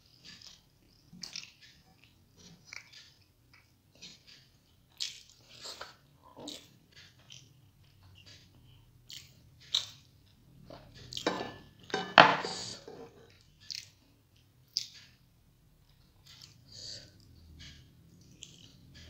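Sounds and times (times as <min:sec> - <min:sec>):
chewing and wet mouth sounds: 0:00.0 - 0:11.4, 0:12.5 - 0:15.2, 0:15.8 - 0:19.0
fingers squishing food: 0:00.1 - 0:11.3.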